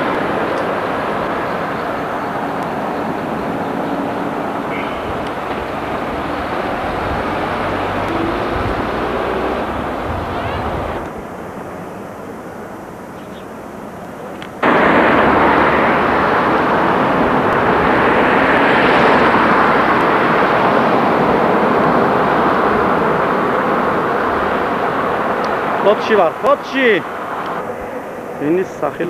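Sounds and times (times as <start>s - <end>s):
wind on microphone: 0.0s - 11.3s, 14.6s - 26.0s
moving car rushing noise: 0.0s - 11.4s, 14.6s - 29.0s.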